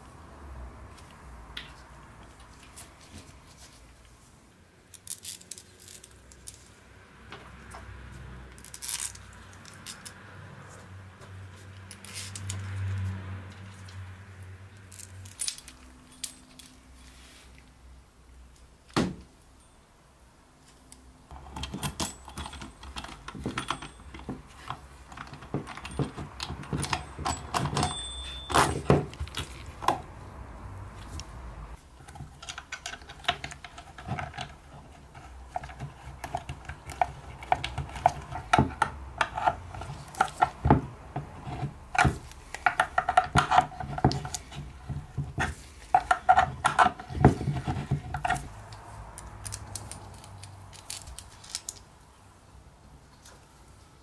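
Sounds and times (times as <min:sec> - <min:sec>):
metal hardware clinking: 0:14.9 - 0:16.9, 0:21.3 - 0:30.0, 0:49.2 - 0:51.9.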